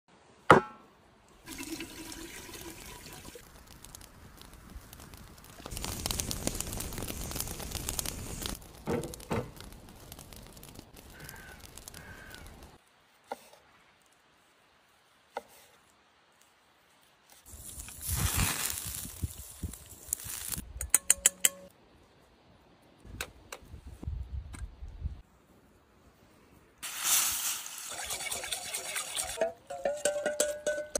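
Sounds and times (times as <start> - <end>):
water sounds: 1.4 - 3.5, 26.8 - 29.4.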